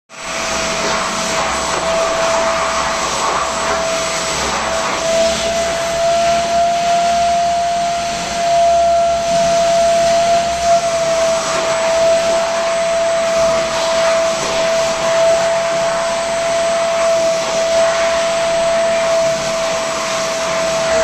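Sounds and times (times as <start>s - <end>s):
vacuum cleaner running: 0.1s - 21.0s.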